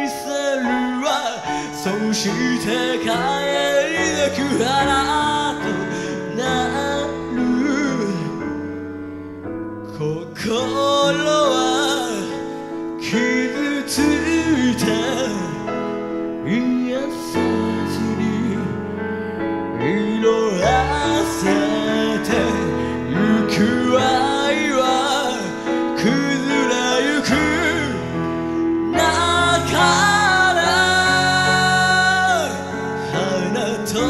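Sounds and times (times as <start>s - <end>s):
man singing into microphone: 0.0s - 8.7s, 9.8s - 34.0s
bass line: 27.2s - 34.0s.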